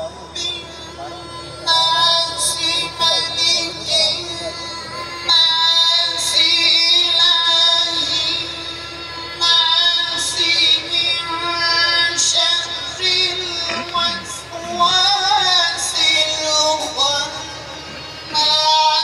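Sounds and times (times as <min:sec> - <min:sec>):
high voice singing chant: 0:00.0 - 0:19.0.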